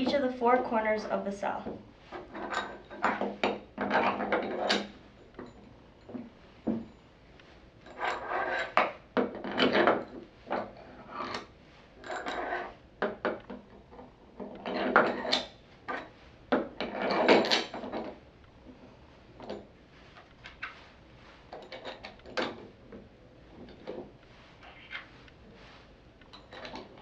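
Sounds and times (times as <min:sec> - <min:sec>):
metal bolts scraping and clinking: 0:02.0 - 0:07.0, 0:07.8 - 0:18.2, 0:21.5 - 0:25.2, 0:26.3 - 0:27.0.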